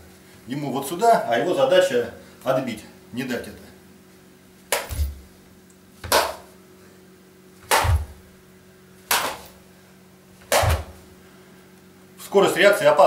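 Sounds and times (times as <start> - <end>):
sharp open-hand slaps: 4.7 - 5.2, 6.0 - 6.5, 7.6 - 8.2, 9.1 - 9.6, 10.4 - 11.0.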